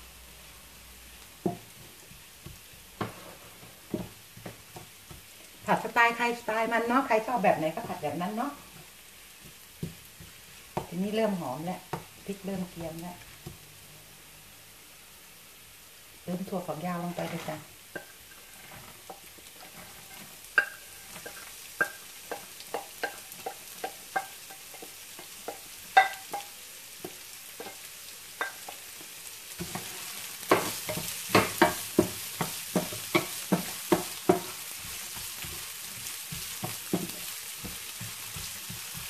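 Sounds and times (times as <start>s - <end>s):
beans sizzling in hot oil: 0.0s - 39.0s
wooden spatula scraping a pan: 1.6s - 5.8s, 16.8s - 28.8s, 29.6s - 39.0s.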